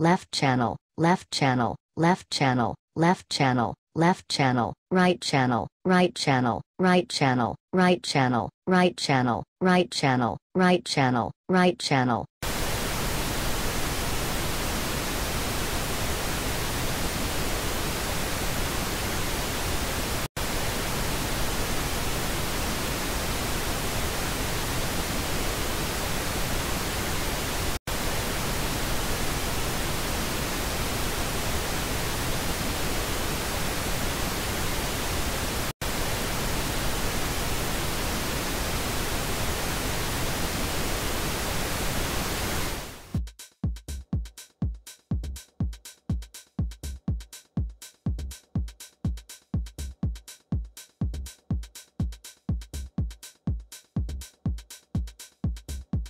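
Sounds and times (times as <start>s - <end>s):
pink noise hiss: 12.4s - 43.1s.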